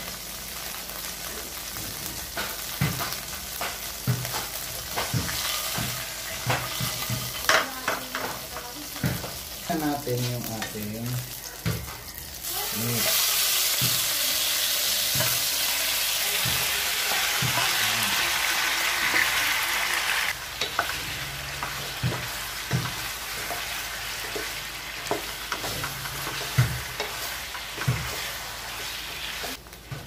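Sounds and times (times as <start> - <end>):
meat sizzling in hot oil: 0.0 - 29.6
wooden spatula knocking on pan: 2.3 - 8.4, 9.0 - 9.4, 16.3 - 17.8, 21.6 - 28.3.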